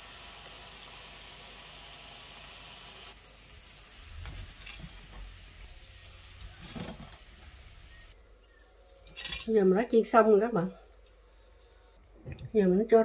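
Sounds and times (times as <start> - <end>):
hot oil sizzling: 0.0 - 8.2.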